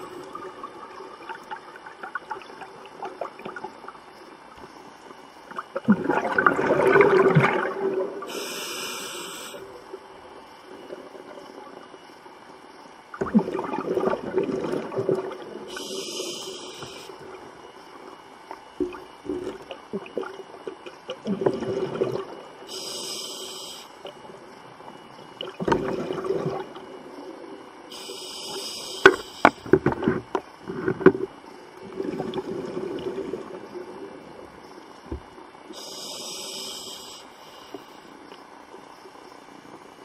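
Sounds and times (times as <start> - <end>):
bubbling exhalations underwater: 5.6 - 8.3, 13.2 - 15.9, 21.1 - 22.6, 25.4 - 26.9
hissing regulator inhalations: 8.3 - 9.7, 15.7 - 17.2, 22.7 - 24.1, 27.9 - 29.6, 35.7 - 38.1.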